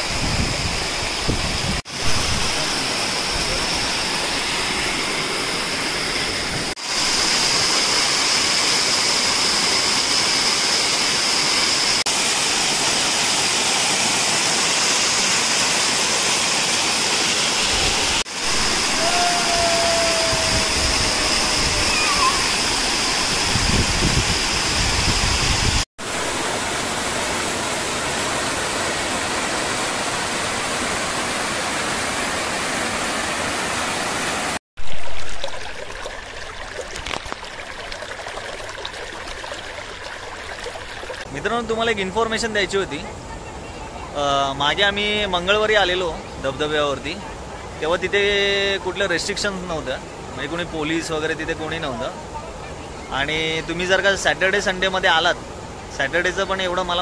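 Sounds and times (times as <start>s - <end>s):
waterfall splashing onto rock: 34.5s - 41.3s.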